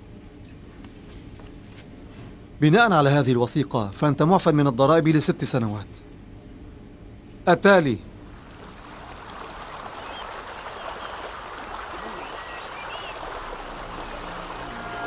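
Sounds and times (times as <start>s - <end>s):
water rushing down a channel: 8.2s - 15.0s
faint bird chirps: 9.5s - 15.0s
bowed string music: 13.2s - 15.0s.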